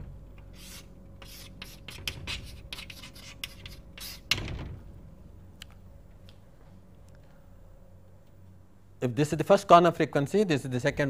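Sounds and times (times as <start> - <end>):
pen scratching handwriting: 0.6 - 4.3.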